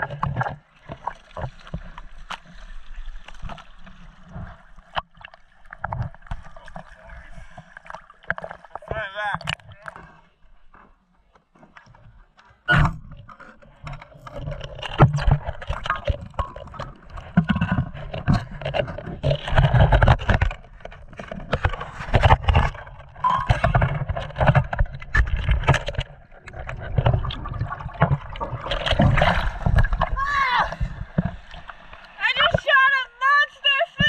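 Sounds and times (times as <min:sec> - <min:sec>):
muffled underwater rumbling: 0:11.7 - 0:32.7.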